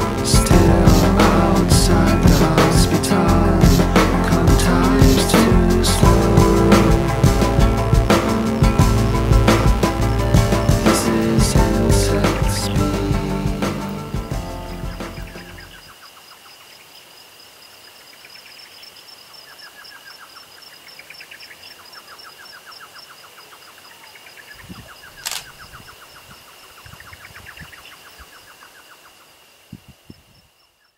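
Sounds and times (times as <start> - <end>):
bird trilling: 14.6 - 15.8
sharp click: 25.2 - 25.6.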